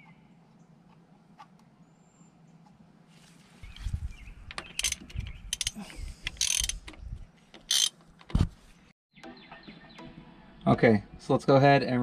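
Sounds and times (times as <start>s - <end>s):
metal tools clicking and clattering: 4.5s - 6.8s.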